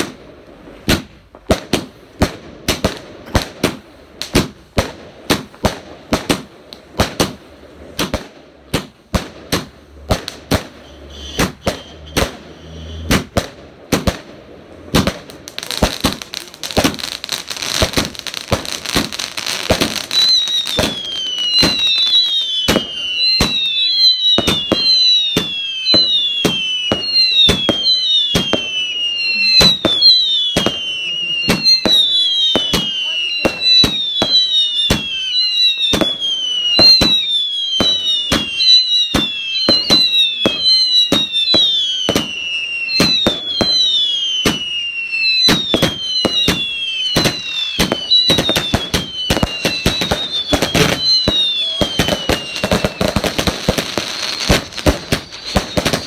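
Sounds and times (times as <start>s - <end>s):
fireworks bangs: 0.0s - 56.0s
fireworks crackling: 0.0s - 56.0s
falling firework whistles: 5.2s - 14.3s, 14.9s - 56.0s.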